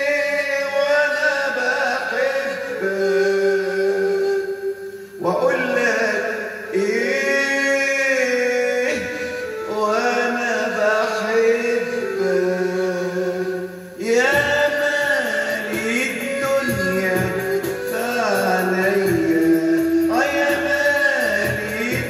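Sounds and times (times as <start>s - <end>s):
electronic keyboard melody: 14.2s - 22.0s.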